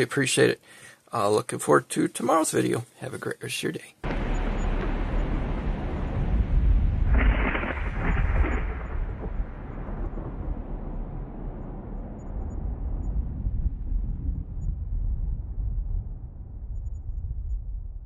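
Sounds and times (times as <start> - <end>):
low steady rumble: 4.0 - 18.0.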